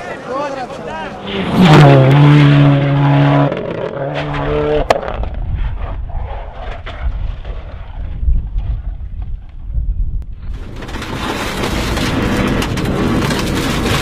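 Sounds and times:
rally car engine at high revs: 0:01.2 - 0:05.4
low rumble: 0:01.2 - 0:14.0.

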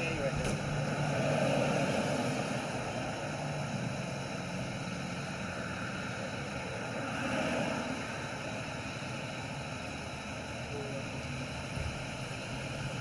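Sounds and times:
street traffic hum: 0:00.0 - 0:13.0.

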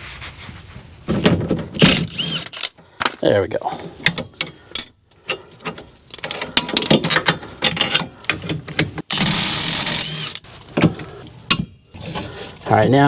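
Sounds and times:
tools and metal parts clinking: 0:04.0 - 0:09.0
impact wrench running: 0:09.1 - 0:10.4.

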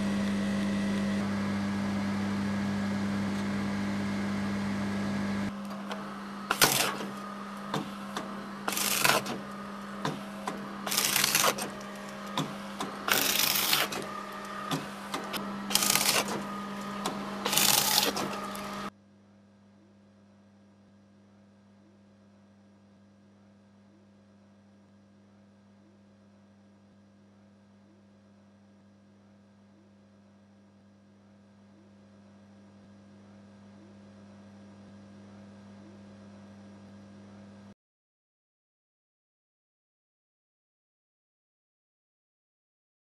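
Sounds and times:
guillotine machine hum: 0:00.0 - 0:19.0.

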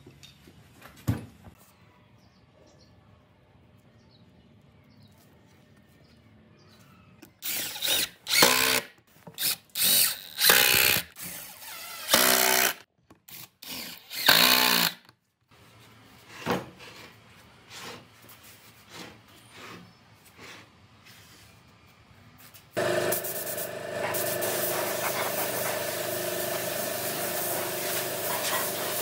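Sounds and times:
cordless drill driving screws: 0:07.4 - 0:15.0.

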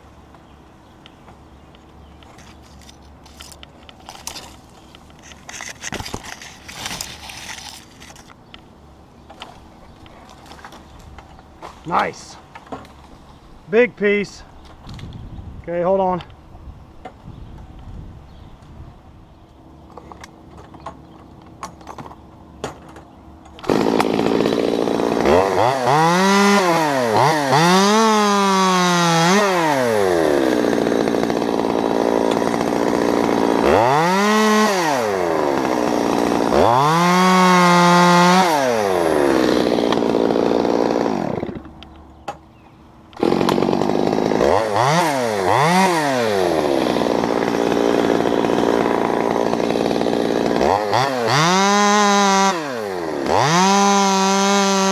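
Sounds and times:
chainsaw revving and idling: 0:23.6 - 0:41.7, 0:43.2 - 0:54.9.

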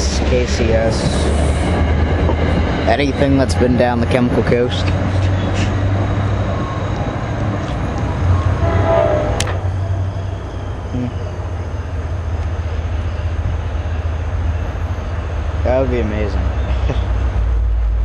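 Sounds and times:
train rumbling past: 0:00.0 - 0:18.0.

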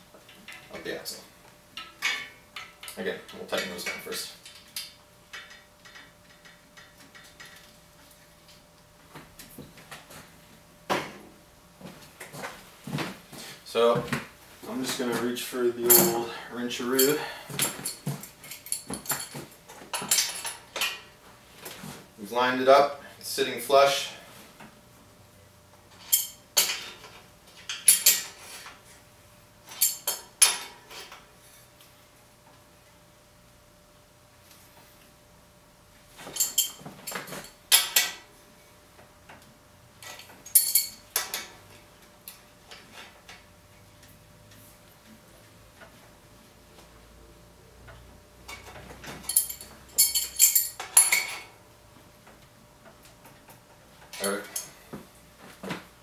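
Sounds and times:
metal hardware clinking: 0:15.8 - 0:21.1, 0:26.0 - 0:27.0, 0:29.7 - 0:31.2, 0:36.2 - 0:38.3, 0:40.0 - 0:41.6, 0:48.5 - 0:51.5, 0:54.0 - 0:54.8.

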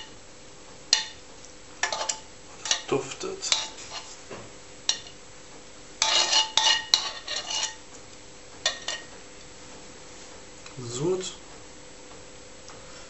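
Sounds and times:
metal tongs clinking on pan: 0:01.8 - 0:04.1, 0:04.9 - 0:05.2, 0:06.0 - 0:07.8, 0:08.7 - 0:09.1.

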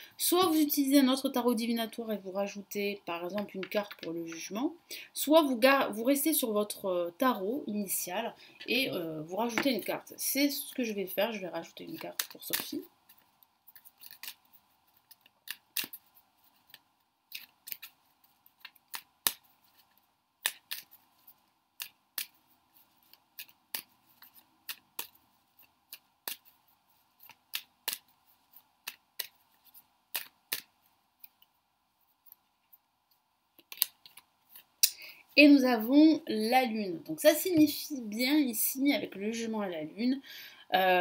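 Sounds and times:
cards being shuffled: 0:03.3 - 0:04.6, 0:08.6 - 0:31.5, 0:33.5 - 0:34.8.

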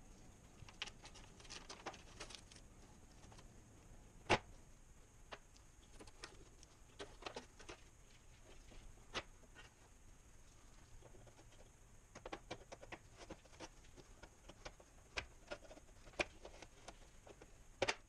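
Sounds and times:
plastic toy being handled: 0:00.6 - 0:03.5, 0:05.3 - 0:09.9, 0:10.6 - 0:18.0
knife scraping plastic: 0:12.2 - 0:18.0.

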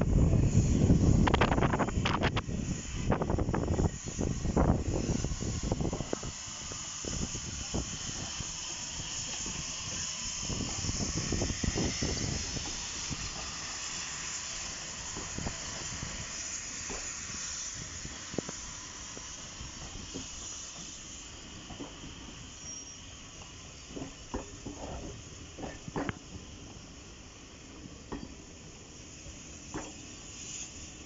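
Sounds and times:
steam hissing: 0:00.0 - 0:31.0
wheels clanking on rails: 0:05.8 - 0:26.8.

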